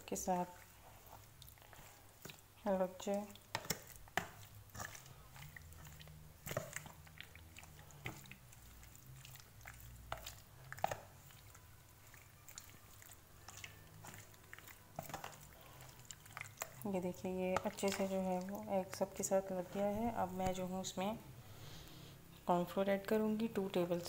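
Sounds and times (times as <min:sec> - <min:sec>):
wet squelching: 0:00.0 - 0:20.9.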